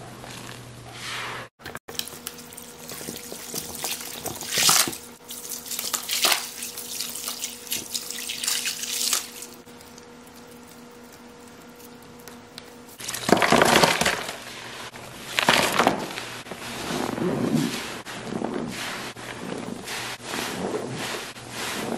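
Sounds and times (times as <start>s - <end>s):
liquid splashing and trickling: 1.9s - 10.6s.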